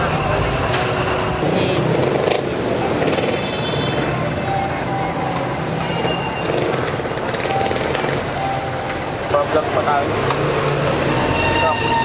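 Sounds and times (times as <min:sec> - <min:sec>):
vehicle engine running: 0:00.0 - 0:11.0
crowd chatter: 0:00.0 - 0:12.0.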